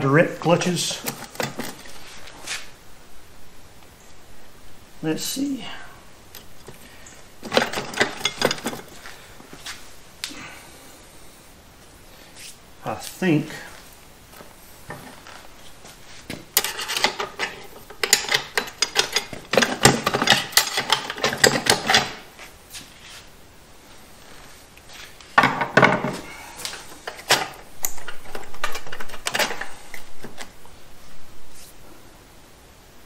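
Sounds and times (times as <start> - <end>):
metal parts clicking and clattering: 0.9 - 1.9, 7.4 - 9.1, 16.5 - 22.3, 25.4 - 30.1.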